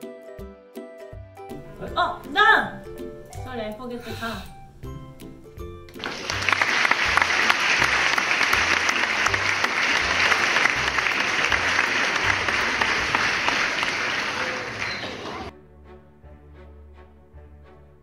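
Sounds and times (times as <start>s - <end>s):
crowd applause: 6.0s - 15.5s.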